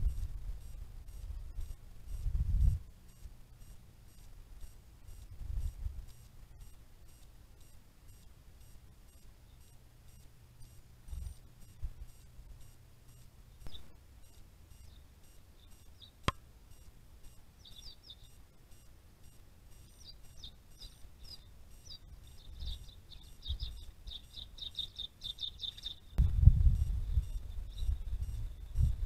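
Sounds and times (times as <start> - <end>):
small bird chirping: 0.0 - 29.0
sharp click: 16.2 - 16.5
low rumble: 26.2 - 29.0.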